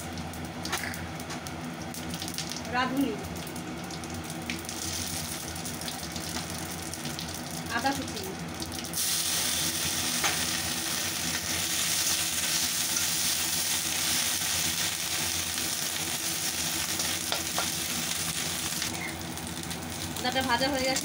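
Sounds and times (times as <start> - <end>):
ginger sizzling in hot oil: 0.0 - 21.0.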